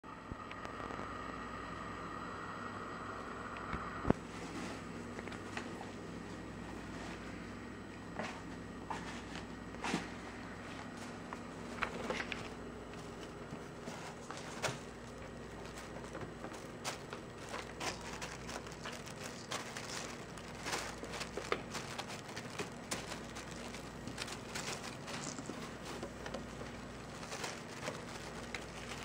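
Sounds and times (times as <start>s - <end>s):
faint low hum: 0.1s - 29.0s
tissue paper rustling: 9.0s - 29.0s
kitten scratching in cardboard box: 13.6s - 29.0s.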